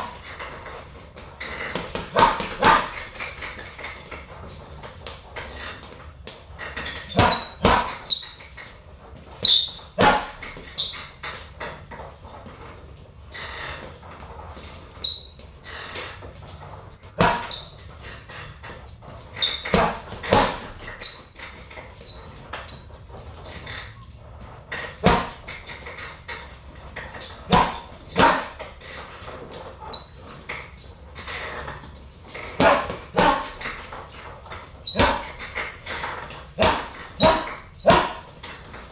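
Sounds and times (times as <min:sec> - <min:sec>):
punches hitting heavy bag: 0:01.8 - 0:03.0, 0:07.1 - 0:08.0, 0:10.0 - 0:10.5, 0:17.1 - 0:17.5, 0:19.6 - 0:20.8, 0:25.0 - 0:25.4, 0:27.5 - 0:28.6, 0:32.6 - 0:33.6, 0:35.0 - 0:35.4, 0:36.6 - 0:38.3.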